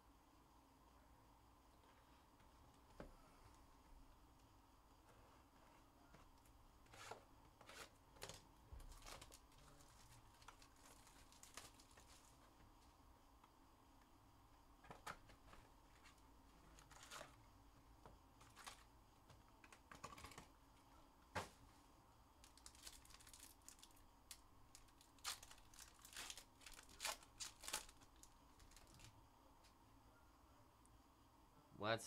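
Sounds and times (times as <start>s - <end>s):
foil packs crinkling: 7.7s - 12.4s, 18.4s - 18.9s, 22.4s - 29.1s.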